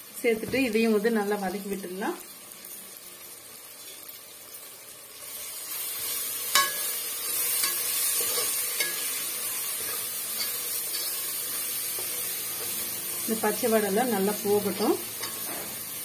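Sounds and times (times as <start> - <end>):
masala sizzling in a pot: 0.0 - 16.0
metal spoon clinking on pot: 6.5 - 6.9, 7.6 - 9.2.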